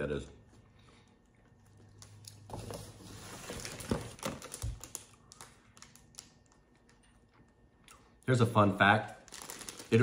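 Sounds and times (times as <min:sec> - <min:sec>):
plastic bag and paper crinkling: 0:02.5 - 0:07.0, 0:09.1 - 0:10.0.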